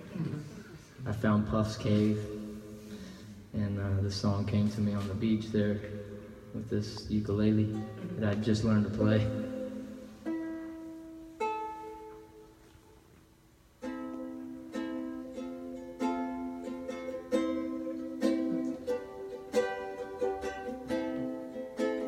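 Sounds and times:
ukulele plucked chords: 0:04.9 - 0:13.0, 0:13.7 - 0:22.0.

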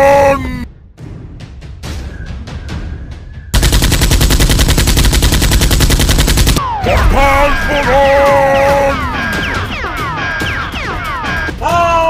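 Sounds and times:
machine-gun fire: 0:03.6 - 0:07.7.

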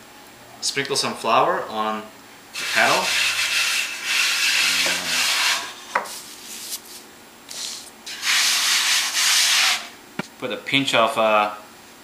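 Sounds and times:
hand rubbing flour on wooden peel: 0:02.6 - 0:09.9
quiet scuffing: 0:06.0 - 0:07.1.

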